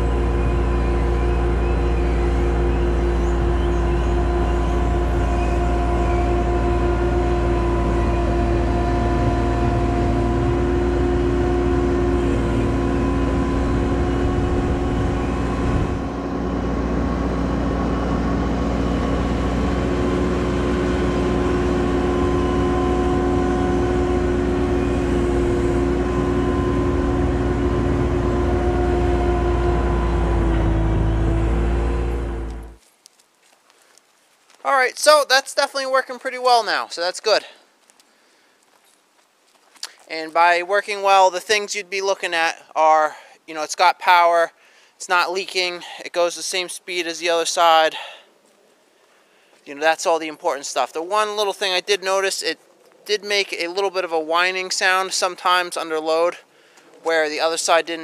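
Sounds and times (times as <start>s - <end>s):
diesel engine running: 0.0s - 32.8s, 45.1s - 48.3s, 49.7s - 58.0s
steady whine: 0.0s - 32.8s, 49.6s - 58.0s.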